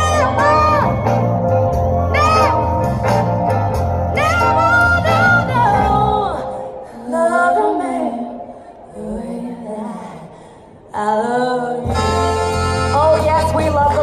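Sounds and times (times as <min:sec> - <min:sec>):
heavy bass line: 0:00.0 - 0:06.2
singing voice: 0:04.1 - 0:14.0.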